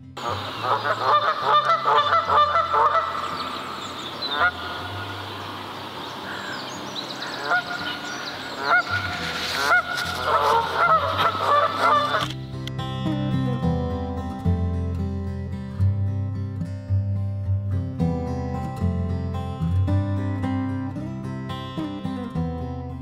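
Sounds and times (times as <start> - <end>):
geese honking: 0.2 - 12.4.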